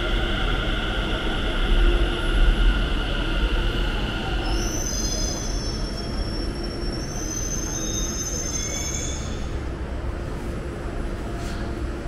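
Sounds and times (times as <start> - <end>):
train rumbling: 0.0 - 12.0
high-pitched wheel squeal: 4.4 - 9.5.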